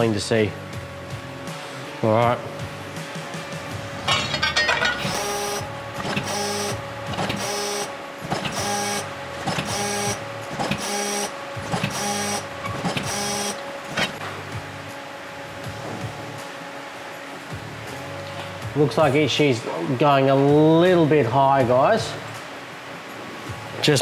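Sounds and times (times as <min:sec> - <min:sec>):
hydraulic press humming whine: 0:02.4 - 0:18.8.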